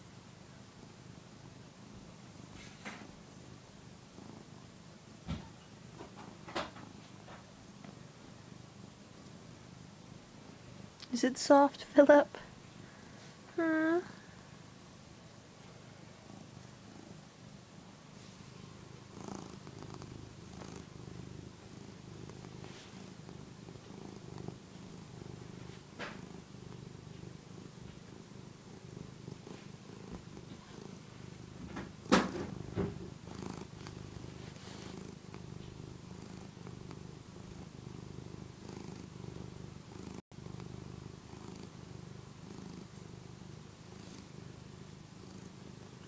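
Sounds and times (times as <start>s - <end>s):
cat purring: 0.0s - 46.0s.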